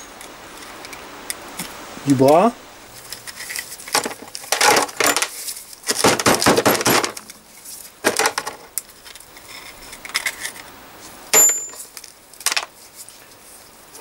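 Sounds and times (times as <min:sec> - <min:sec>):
metal rollers clinking into plastic tub: 0:03.4 - 0:06.0.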